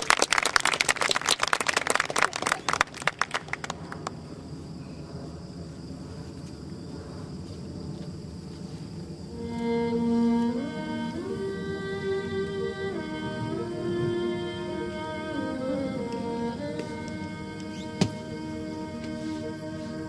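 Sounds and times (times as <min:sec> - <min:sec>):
small audience clapping: 0:00.0 - 0:04.2.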